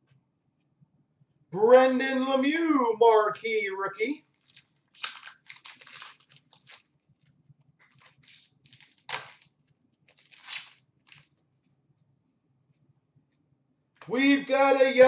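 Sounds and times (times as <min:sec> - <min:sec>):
wrapper tearing and crinkling: 0:04.2 - 0:07.0, 0:07.9 - 0:11.4.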